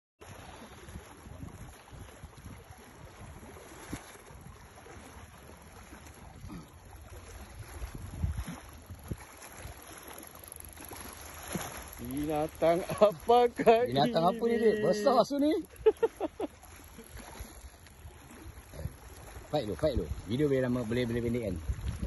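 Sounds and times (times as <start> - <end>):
wind rumbling on microphone: 0.2 - 13.3, 16.7 - 22.0.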